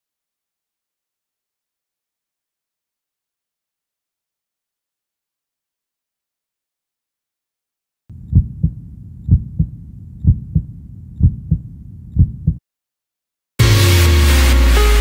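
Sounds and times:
heartbeat double thumps: 0:08.1 - 0:12.6.

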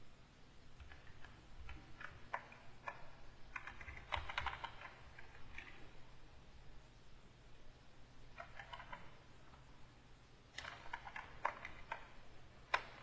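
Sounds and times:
computer keyboard keys clicking: 0:00.8 - 0:05.8, 0:08.3 - 0:09.2, 0:10.6 - 0:13.0.

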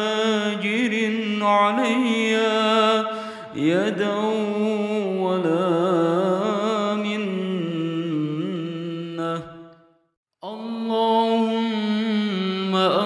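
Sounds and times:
person chanting melodically: 0:00.0 - 0:09.8, 0:10.4 - 0:13.0.

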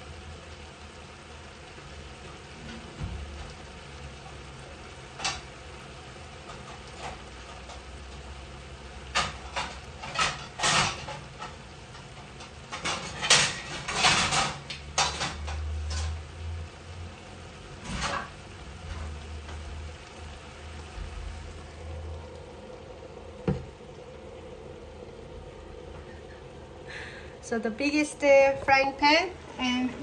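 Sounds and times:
pots and pans clanking: 0:02.5 - 0:03.6, 0:05.0 - 0:05.6, 0:06.3 - 0:08.1, 0:08.9 - 0:16.5, 0:17.7 - 0:19.7
steady low hum: 0:18.0 - 0:30.0.

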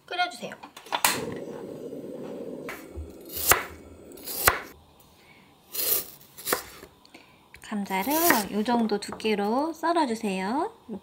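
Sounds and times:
low rushing noise: 0:01.2 - 0:04.8.

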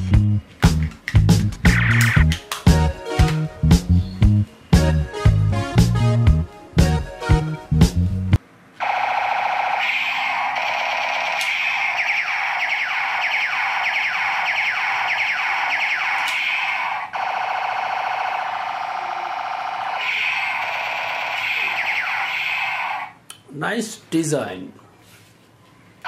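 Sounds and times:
toy laser zaps: 0:01.7 - 0:02.7, 0:08.8 - 0:23.2
warbling electronic alarm tone: 0:08.8 - 0:23.1.

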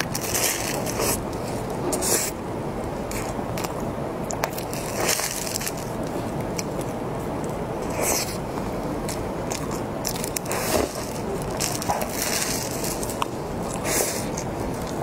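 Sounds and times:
wet squishy chewing: 0:03.0 - 0:15.0.

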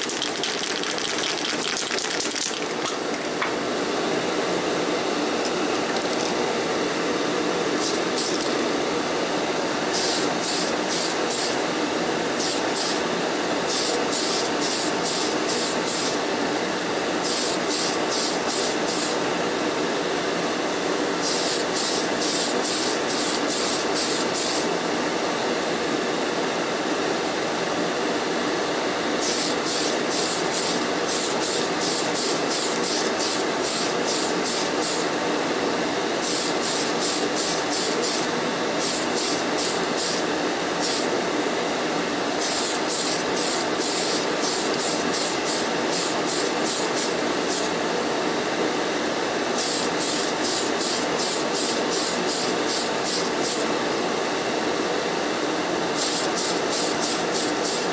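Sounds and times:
aerosol can spraying: 0:00.0 - 0:02.8, 0:07.8 - 0:08.6, 0:09.9 - 0:11.6, 0:12.4 - 0:13.0, 0:13.7 - 0:16.2, 0:17.2 - 0:19.2, 0:21.2 - 0:24.7, 0:29.2 - 0:35.1, 0:36.2 - 0:40.2, 0:40.8 - 0:41.1, 0:42.4 - 0:47.7, 0:49.6 - 0:53.6, 0:56.0 - 0:57.9.

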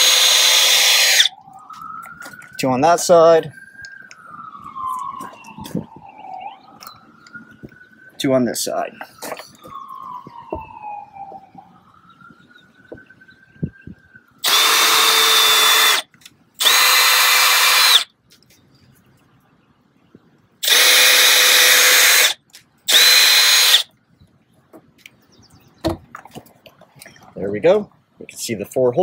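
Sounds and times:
cordless drill whining: 0:00.0 - 0:01.3, 0:14.4 - 0:16.0, 0:16.6 - 0:18.1, 0:20.6 - 0:23.9.

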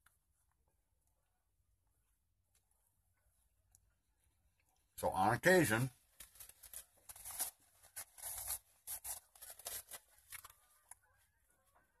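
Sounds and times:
paper napkin handled: 0:06.2 - 0:10.6.

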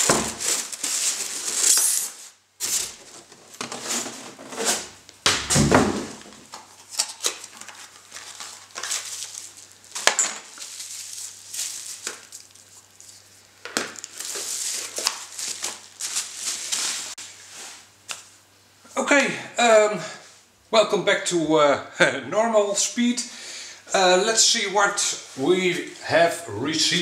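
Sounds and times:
plastic packaging crinkling: 0:00.0 - 0:04.8, 0:06.3 - 0:17.2.

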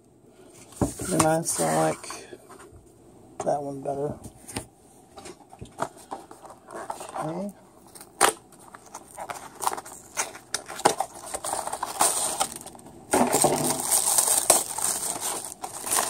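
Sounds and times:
packaging crinkling: 0:05.8 - 0:16.0.

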